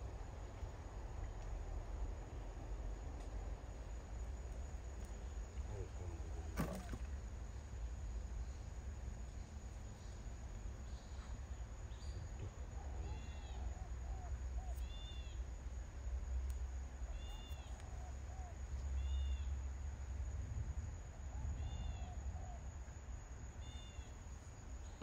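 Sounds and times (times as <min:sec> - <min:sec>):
steady low rumble: 0:00.0 - 0:13.0
lower looping bird calls: 0:08.3 - 0:19.6, 0:21.1 - 0:25.0.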